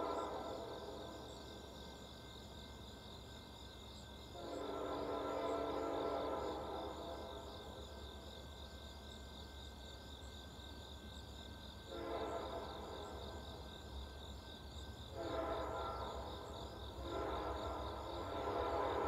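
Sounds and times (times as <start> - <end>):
distant locomotive air horn: 0.0 - 1.2, 4.3 - 7.8, 11.8 - 13.4, 15.1 - 19.0
crickets chirping: 0.0 - 19.0.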